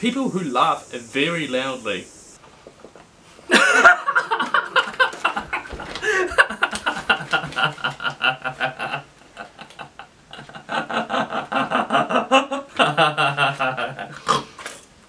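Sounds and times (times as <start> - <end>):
man laughing loudly: 3.5 - 14.2.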